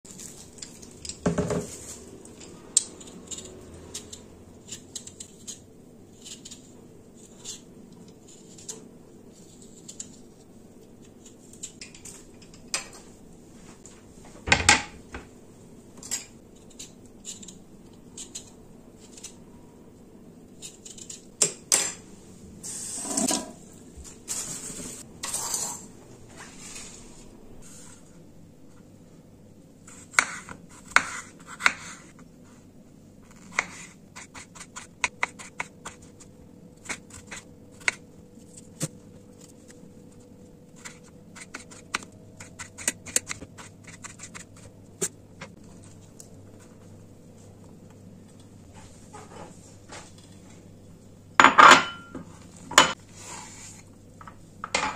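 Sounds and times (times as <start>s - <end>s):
objects knocking on countertop: 1.2s - 1.7s
knife peeling potato: 2.7s - 10.3s, 29.8s - 32.2s, 33.2s - 39.0s, 40.7s - 45.2s.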